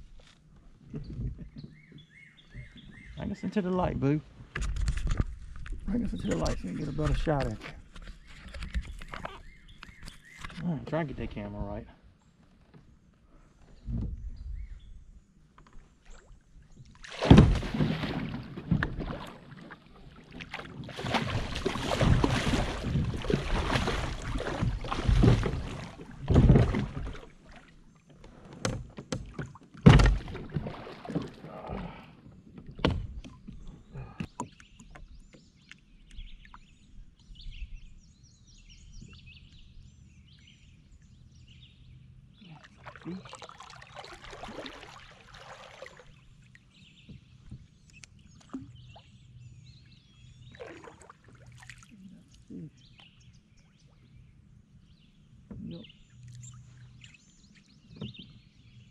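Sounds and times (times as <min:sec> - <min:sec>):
faint bird chirps: 0:08.0 - 0:10.8
water splashing against kayak: 0:15.7 - 0:36.6, 0:42.5 - 0:49.2, 0:50.4 - 0:52.2
knocks on boat: 0:17.2 - 0:19.2, 0:21.1 - 0:27.2, 0:28.6 - 0:31.4, 0:32.7 - 0:33.4.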